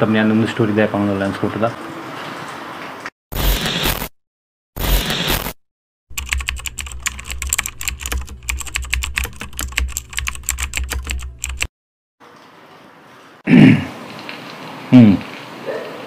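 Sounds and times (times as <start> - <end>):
keyboard key clicks: 6.1 - 11.7.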